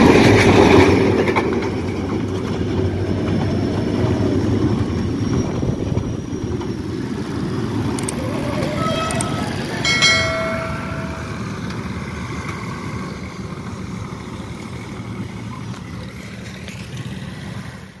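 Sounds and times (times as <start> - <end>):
low engine rumble: 1.7 - 17.9
horn sounding: 8.1 - 11.8.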